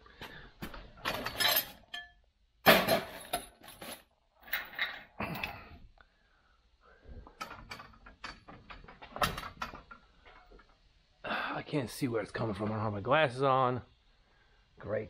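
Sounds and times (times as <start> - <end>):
hard objects clinking and clanking: 1.0 - 5.6.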